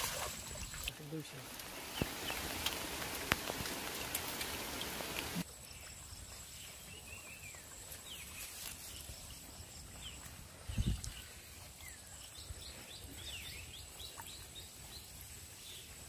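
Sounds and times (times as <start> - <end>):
rain falling on water: 0.0 - 5.5.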